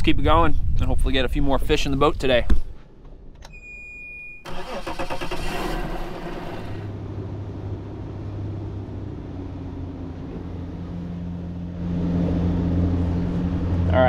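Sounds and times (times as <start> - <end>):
boat engine starting and humming: 4.4 - 14.0.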